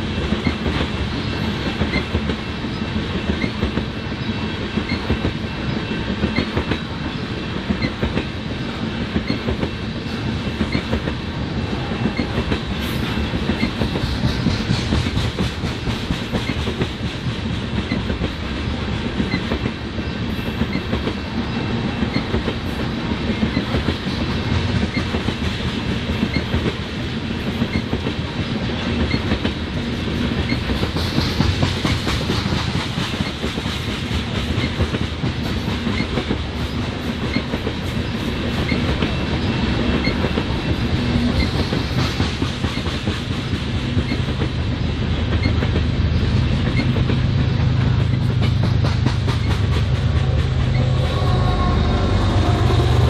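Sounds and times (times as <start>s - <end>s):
train wheels clicking over rail joints: 0.0s - 53.0s.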